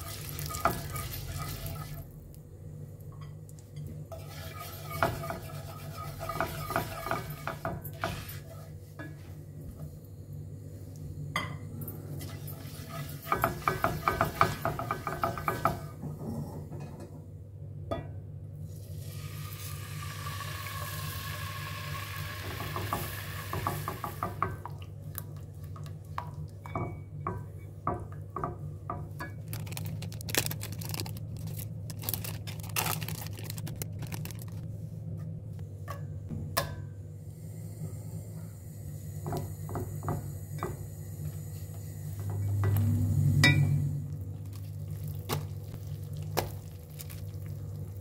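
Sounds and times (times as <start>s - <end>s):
spatula scraping pan: 0.0s - 2.0s, 4.1s - 8.8s, 12.2s - 15.9s
steady low hum: 0.0s - 12.6s, 24.4s - 48.0s
milk hissing in hot pan: 18.9s - 24.0s.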